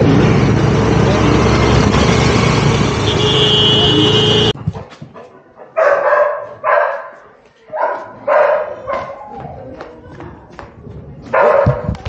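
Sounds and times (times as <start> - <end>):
scooter engine: 0.0 - 4.6
dog barking: 4.8 - 9.3, 11.3 - 12.0.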